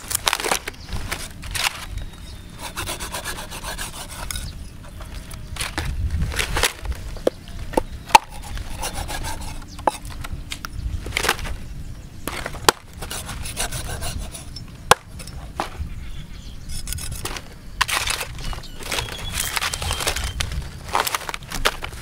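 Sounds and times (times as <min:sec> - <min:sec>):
cleaver scraping through flesh: 0:02.6 - 0:04.6, 0:08.1 - 0:10.1, 0:12.4 - 0:14.6.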